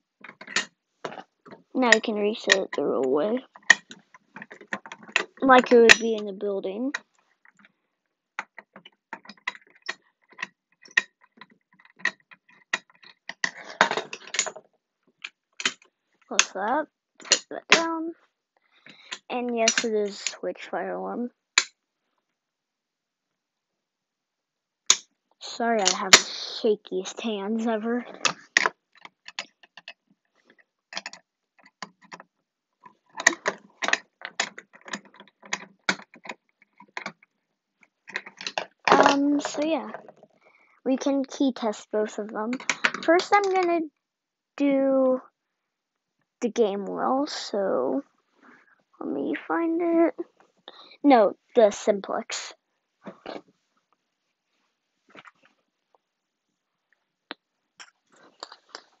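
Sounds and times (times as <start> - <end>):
metallic clicks and clatter: 0.2 - 2.8, 3.4 - 6.3, 8.4 - 17.9, 18.9 - 20.4, 27.9 - 40.3
screwdriver clicking on metal: 5.9 - 6.2.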